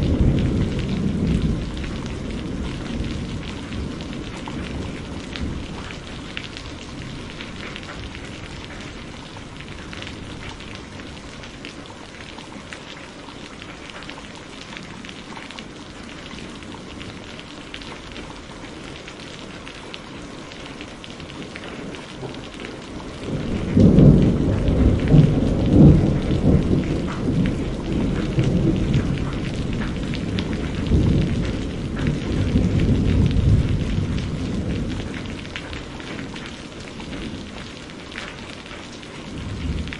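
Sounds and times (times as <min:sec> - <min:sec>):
low rolling thunder: 0:00.0 - 0:11.6, 0:21.2 - 0:39.9
steady rain hissing: 0:00.0 - 0:39.9.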